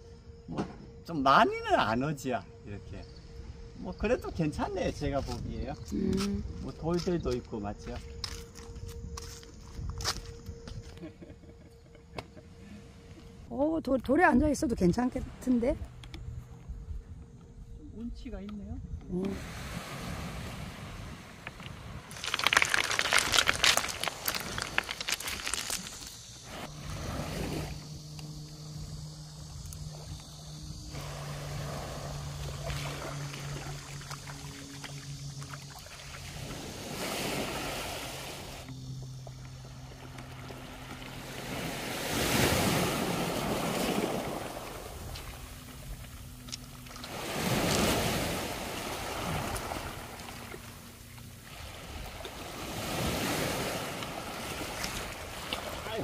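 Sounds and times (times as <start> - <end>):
steady low hum: 0.0 - 22.1, 25.9 - 55.8
footsteps crunching on pebbles: 7.0 - 11.0, 22.1 - 26.4
small waves lapping: 19.2 - 56.0
waves washing onto pebble beach: 22.0 - 26.2.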